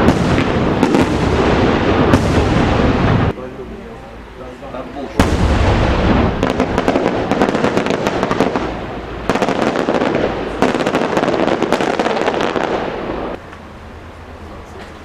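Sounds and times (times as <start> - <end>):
fireworks bursting and crackling: 0.0 - 3.4, 5.0 - 13.4.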